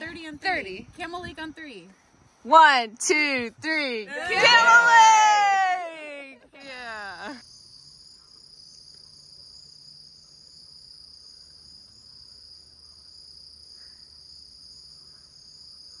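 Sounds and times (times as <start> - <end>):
night insects trilling: 6.6 - 16.0.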